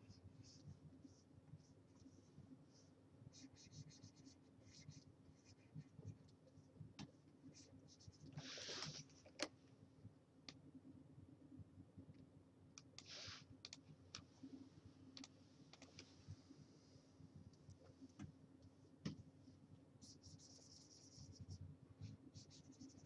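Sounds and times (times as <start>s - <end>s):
faint low hum: 0.0s - 23.0s
short hissy sounds: 8.4s - 9.0s, 13.0s - 13.5s.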